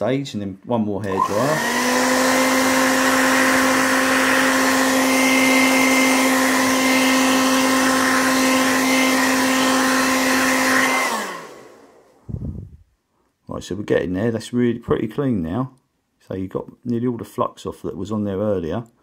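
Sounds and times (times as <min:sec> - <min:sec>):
hair dryer blowing: 0:01.0 - 0:12.7
motor winding down: 0:01.1 - 0:12.0.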